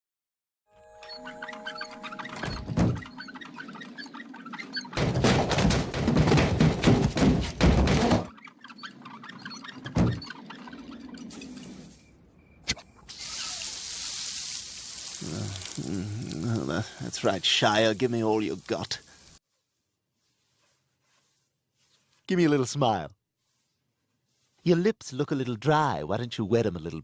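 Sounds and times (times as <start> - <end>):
thunk and click: 4.9 - 8.3
loud rattling clattering: 5.0 - 8.3
hiss of falling water: 13.1 - 19.4.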